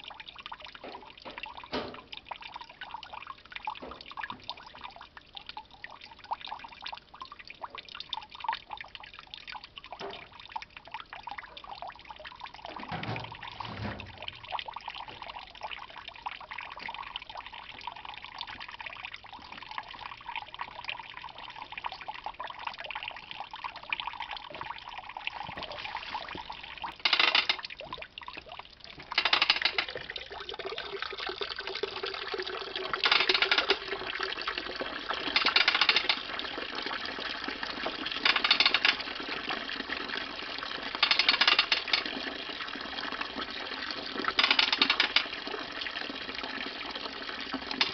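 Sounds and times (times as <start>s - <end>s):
juice trickling into plastic tub: 0.0s - 47.9s
ratchet lever bursts: 27.0s - 27.6s, 29.2s - 29.9s, 33.0s - 33.8s, 35.4s - 36.2s, 38.2s - 39.0s, 41.0s - 42.1s, 44.4s - 45.2s.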